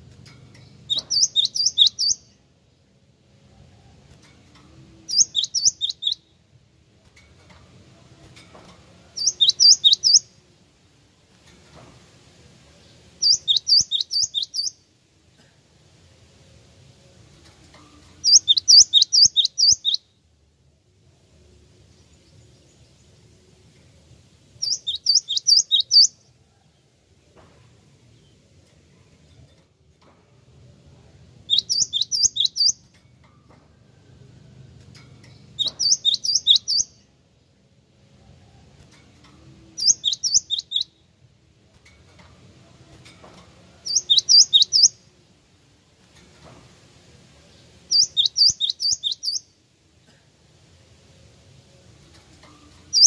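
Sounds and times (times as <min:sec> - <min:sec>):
bird singing sharp high notes: 0:00.8 - 0:02.3, 0:05.1 - 0:06.3, 0:09.2 - 0:10.3, 0:13.2 - 0:14.8, 0:18.2 - 0:20.1, 0:24.6 - 0:26.2, 0:31.4 - 0:32.8, 0:35.6 - 0:37.0, 0:39.8 - 0:41.0, 0:43.8 - 0:45.0, 0:47.9 - 0:49.5.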